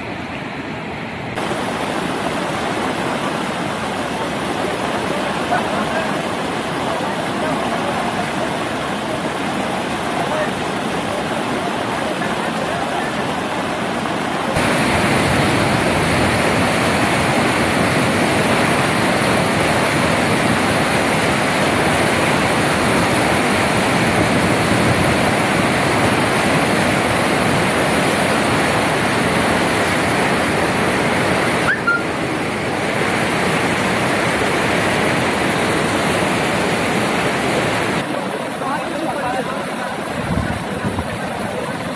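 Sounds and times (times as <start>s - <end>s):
floodwater rushing: 0.0s - 41.9s.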